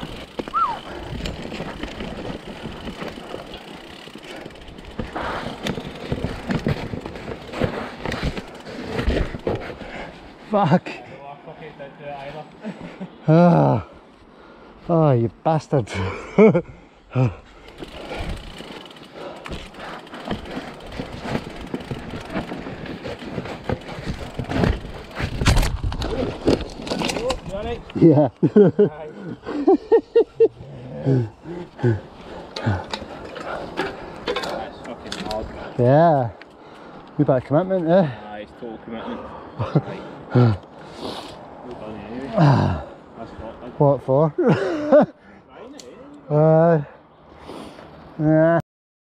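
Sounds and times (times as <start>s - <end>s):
bike knocks and rattles: 0.0s - 10.0s, 17.7s - 27.8s
bike tyres rolling over dirt: 0.0s - 10.2s, 17.5s - 28.3s, 30.9s - 38.2s.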